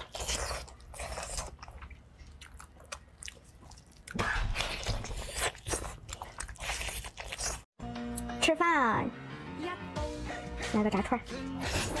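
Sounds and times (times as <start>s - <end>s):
biting and chewing: 0.0s - 7.8s.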